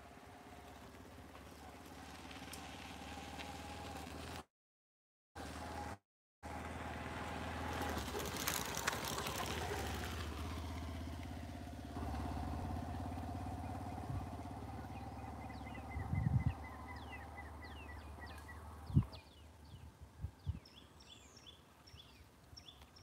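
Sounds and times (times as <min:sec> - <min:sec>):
engine humming: 0:00.0 - 0:04.5, 0:05.4 - 0:19.9
bird chirping: 0:13.5 - 0:23.0.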